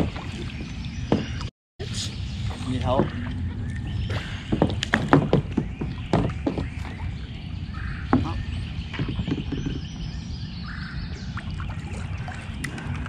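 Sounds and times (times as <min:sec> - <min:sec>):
steady low rumble: 0:01.8 - 0:05.1.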